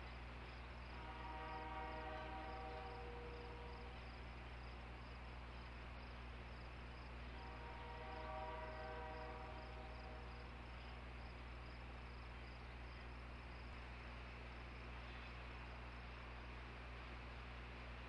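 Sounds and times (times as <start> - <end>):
low hum and hiss: 0.0 - 18.0
distant horn-like tone: 0.9 - 4.0, 7.3 - 10.3.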